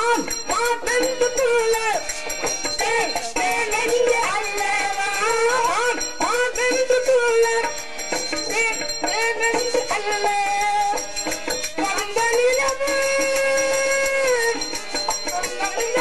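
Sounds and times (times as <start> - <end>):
drums: 0.0 - 16.0
harmonium: 0.0 - 16.0.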